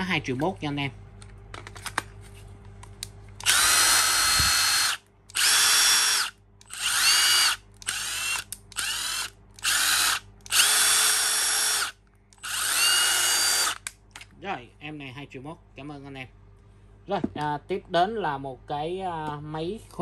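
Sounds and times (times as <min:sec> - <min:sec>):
power tool motor whine: 0:03.4 - 0:13.8.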